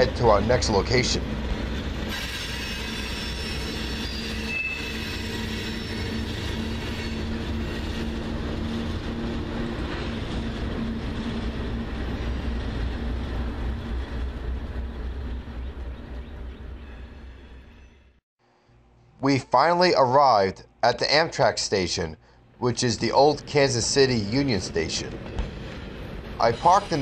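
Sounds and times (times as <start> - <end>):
steel wheels rumbling and clattering: 0.0 - 17.4, 23.1 - 27.0
diesel locomotive passing: 0.0 - 18.2, 22.2 - 27.0
high-pitched wheel squeal: 2.1 - 8.0.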